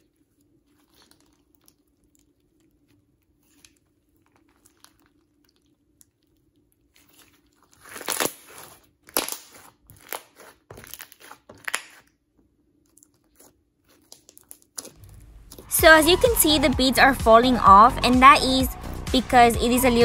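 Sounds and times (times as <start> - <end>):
crunchy slime squishes: 0.0 - 15.7.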